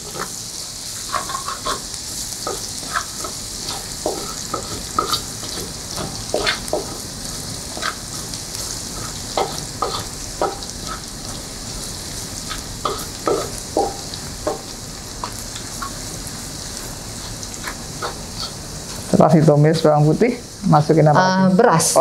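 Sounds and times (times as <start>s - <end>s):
utensil scraping a pan: 0.0s - 7.0s, 7.6s - 11.4s, 17.2s - 19.1s
garlic sizzling in oil: 0.0s - 22.0s.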